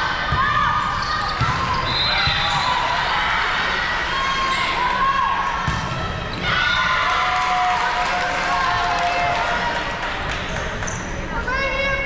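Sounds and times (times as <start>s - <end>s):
sneakers squeaking on court: 0.9s - 2.8s.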